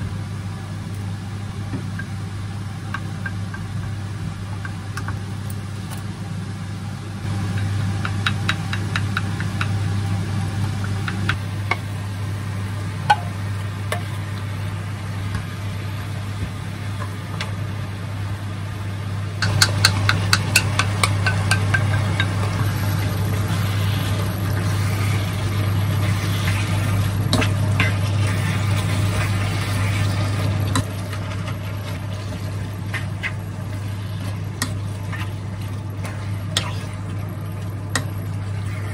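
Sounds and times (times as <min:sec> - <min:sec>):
induction hob humming: 0:00.0 - 0:38.9
spatula tapping frying pan: 0:07.5 - 0:09.8, 0:19.4 - 0:22.4
wooden spatula tapping metal bowl: 0:19.4 - 0:22.4.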